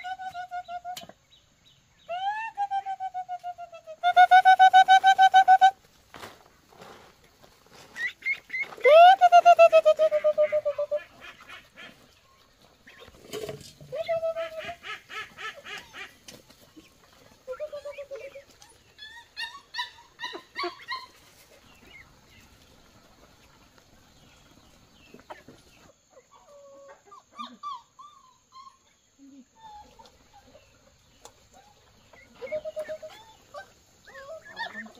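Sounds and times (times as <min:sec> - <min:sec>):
puppies whining and yelping: 0:17.1 - 0:21.3, 0:26.2 - 0:30.7, 0:31.6 - 0:34.9.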